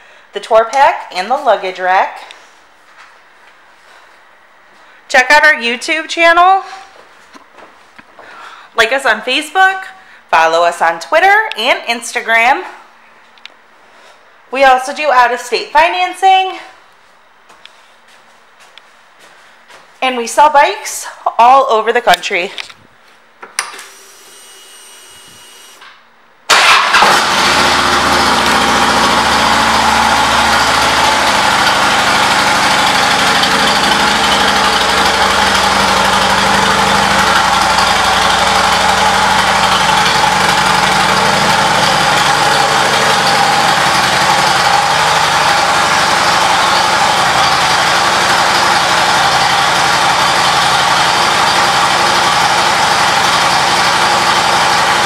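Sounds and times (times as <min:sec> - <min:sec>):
motorcycle engine starting and idling: 0:23.6 - 0:55.0.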